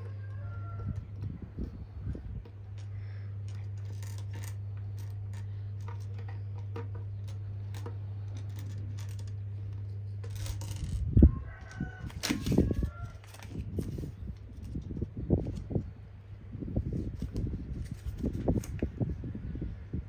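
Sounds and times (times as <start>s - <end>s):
steady low hum: 0.0s - 20.0s
plastic bricks clicking and rattling: 2.4s - 14.0s.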